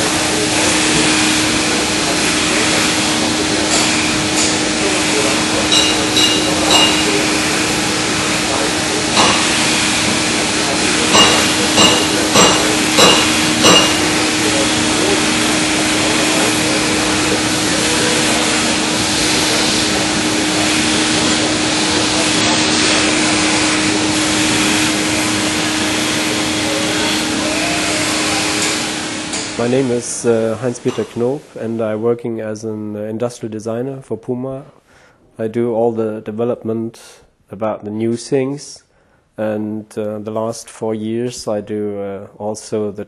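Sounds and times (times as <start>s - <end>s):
workshop machinery humming: 0.0s - 31.8s
sharp ringing metallic knocks: 5.7s - 7.3s, 9.2s - 9.6s, 11.1s - 14.3s.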